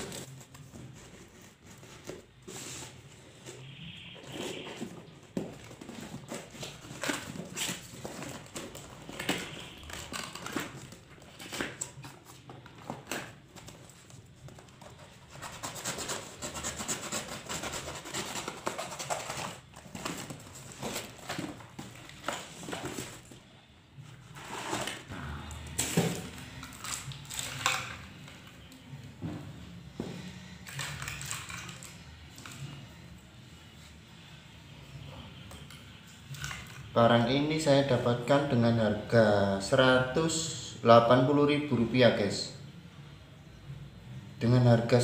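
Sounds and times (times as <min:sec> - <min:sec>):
cardboard rustling and scraping: 0:00.0 - 0:25.1
knife cutting packing tape: 0:15.2 - 0:21.4.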